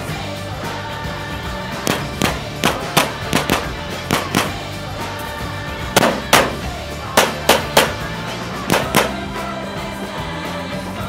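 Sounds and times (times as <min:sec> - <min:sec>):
background music with low tones: 0:00.0 - 0:11.0
handgun shots: 0:01.9 - 0:04.8, 0:06.0 - 0:08.1, 0:08.7 - 0:09.3.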